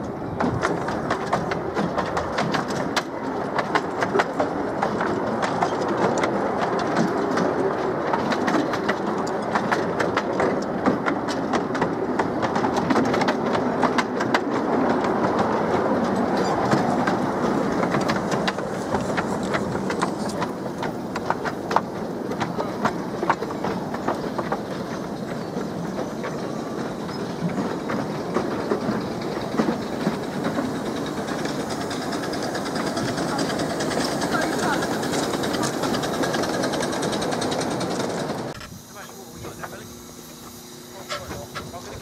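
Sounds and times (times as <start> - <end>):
train carriages rumbling: 0.0 - 42.0
wheels clattering over rail joints: 0.0 - 42.0.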